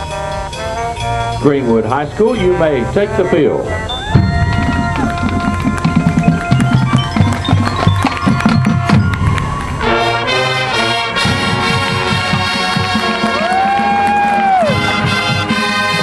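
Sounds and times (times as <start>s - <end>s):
brass section held chords: 0.0s - 7.1s, 8.8s - 13.7s, 14.6s - 16.0s
marching drums beat: 4.1s - 16.0s.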